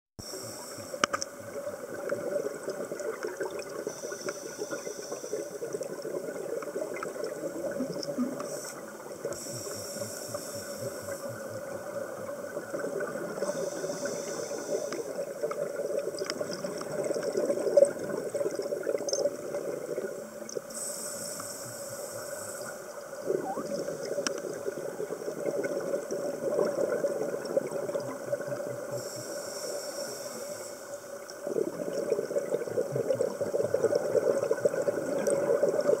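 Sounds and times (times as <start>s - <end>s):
regulator breath hissing: 0.2s - 1.1s, 8.4s - 11.4s, 13.4s - 15.2s, 20.7s - 23.0s, 29.0s - 31.1s
underwater bubbling: 0.2s - 36.0s.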